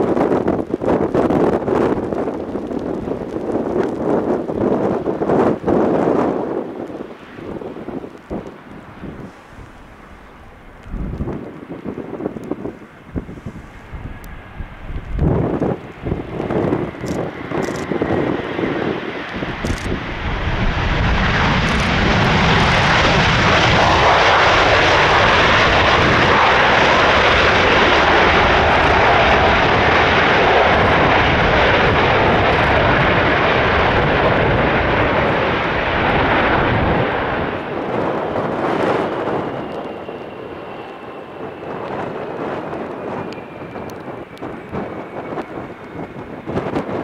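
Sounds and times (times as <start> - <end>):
jet engines at high power: 0.0 - 47.0.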